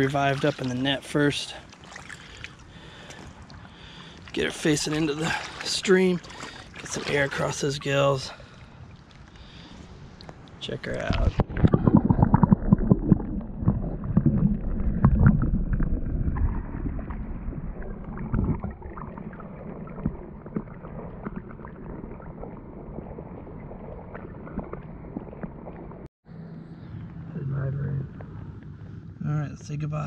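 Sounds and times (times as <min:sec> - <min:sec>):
muffled stream water gurgling: 0:00.0 - 0:26.1.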